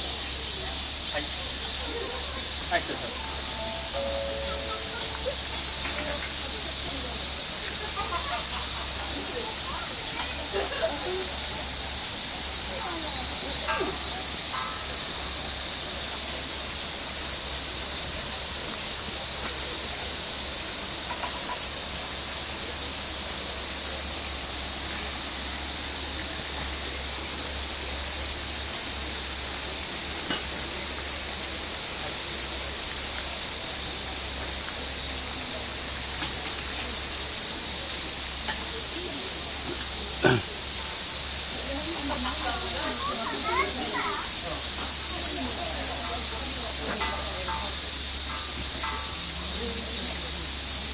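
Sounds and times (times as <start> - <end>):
cicadas hissing: 0.0 - 50.9.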